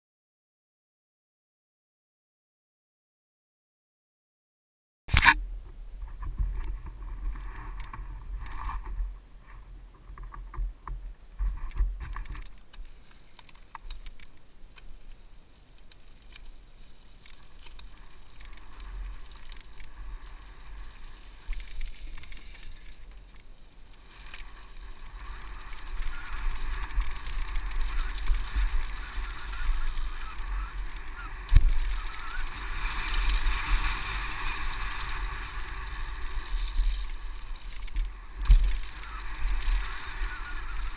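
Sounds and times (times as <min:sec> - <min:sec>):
tyres on dirt and gravel: 0:05.1 - 0:40.9
bike rattling: 0:09.9 - 0:15.0, 0:15.8 - 0:40.9
wind buffeting: 0:17.5 - 0:40.9.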